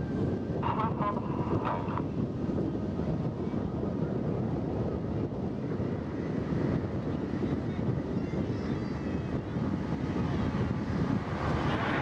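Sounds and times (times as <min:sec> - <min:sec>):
wind buffeting microphone: 0:00.0 - 0:12.0
distant jet roar: 0:10.2 - 0:12.0.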